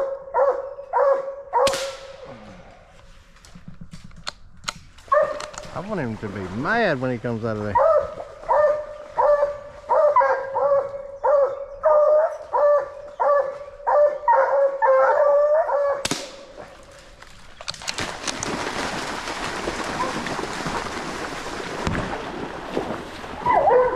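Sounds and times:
dog barking and baying: 0.0s - 1.7s, 5.1s - 5.6s, 7.7s - 16.0s, 23.5s - 23.9s
splashing water rushing: 5.8s - 7.8s, 17.8s - 23.9s.

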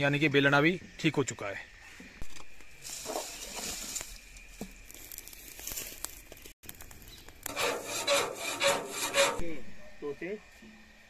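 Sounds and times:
dry leaves rustling and crinkling: 2.2s - 7.4s
rough rubbing strokes: 7.5s - 9.6s.

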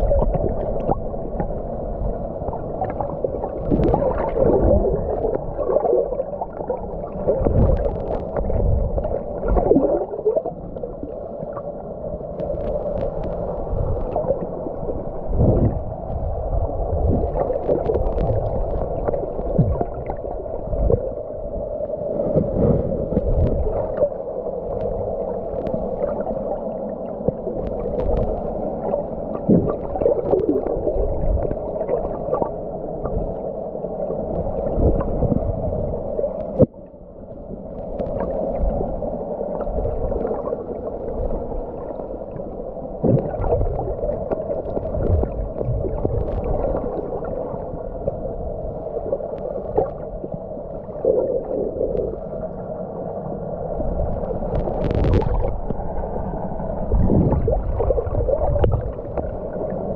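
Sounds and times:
water gurgling and knocking underwater: 0.0s - 11.1s, 12.4s - 21.2s, 27.2s - 33.4s, 43.0s - 48.2s, 54.0s - 55.9s, 56.8s - 59.9s.

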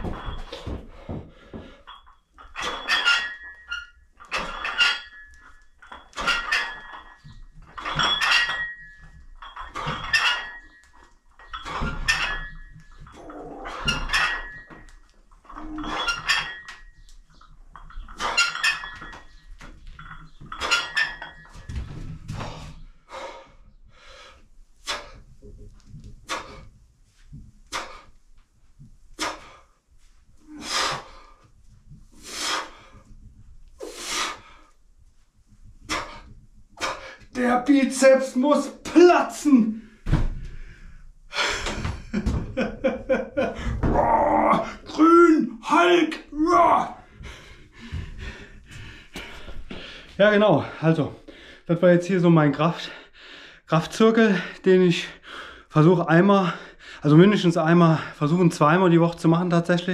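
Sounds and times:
weights ringing metallically: 1.6s - 21.8s.

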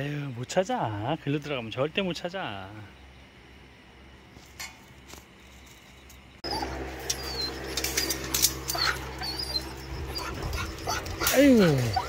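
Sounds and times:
steady low hum: 0.0s - 12.0s
dogs whimpering: 6.4s - 12.0s.

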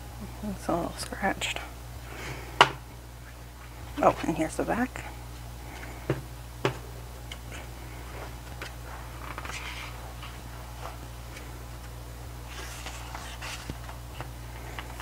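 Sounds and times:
steady low hum: 0.0s - 15.0s
book pages turning: 7.3s - 15.0s.

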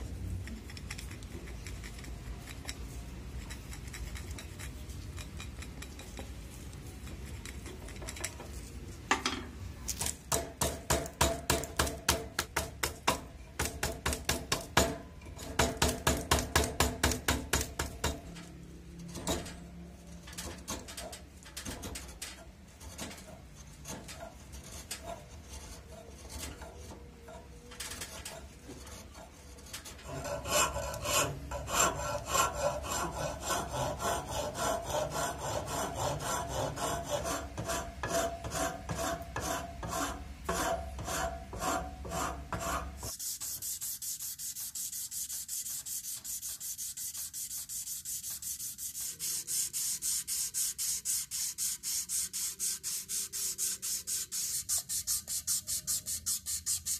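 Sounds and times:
blade scraping wood: 28.0s - 43.2s
rubbing strokes on wood: 28.7s - 56.9s.

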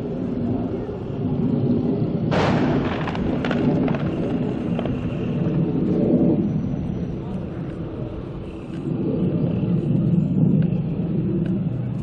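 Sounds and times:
low rumble: 0.0s - 12.0s
explosion blast: 2.3s - 5.5s
sharp cracks: 2.3s - 5.6s.

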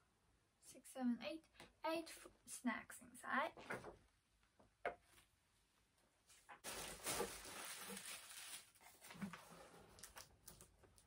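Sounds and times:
tissue paper rustling: 6.6s - 10.2s.

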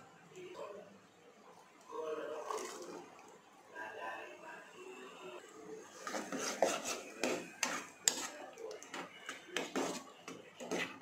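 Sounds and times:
ladle scraping a cooking pan: 5.8s - 11.0s.

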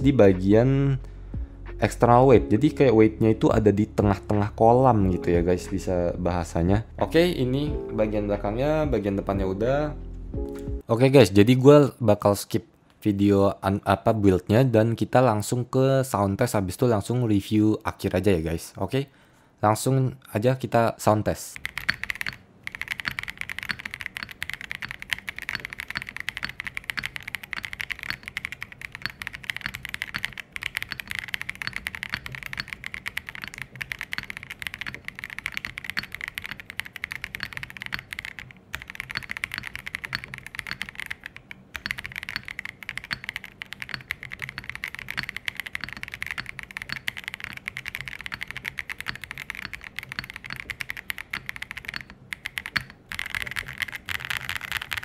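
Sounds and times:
mechanical keyboard keystroke clacks: 21.6s - 55.0s.

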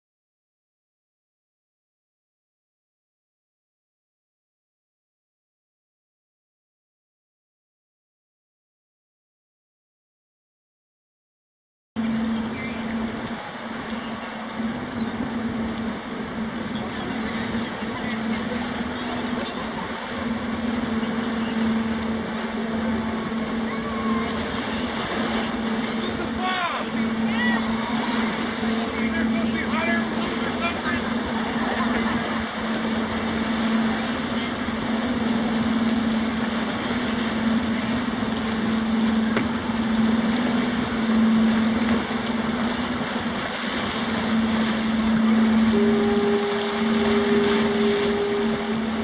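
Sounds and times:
rumbling water wash: 12.0s - 49.0s
ship engine drone: 12.0s - 49.0s.

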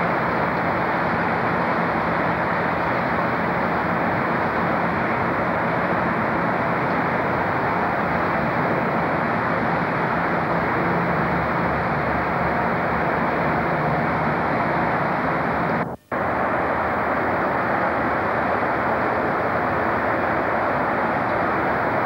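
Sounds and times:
trackside rumble: 0.0s - 22.0s.

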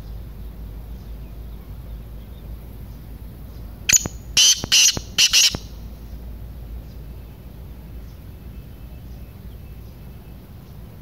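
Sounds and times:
francolin calling harsh notes: 3.9s - 5.8s.

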